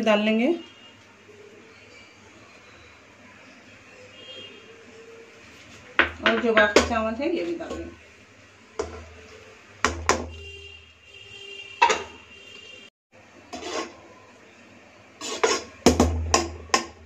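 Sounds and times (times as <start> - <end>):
spoon knocking and scraping metal pots: 6.0 - 8.0, 8.8 - 10.5, 11.8 - 12.2, 13.5 - 14.0, 15.2 - 17.0.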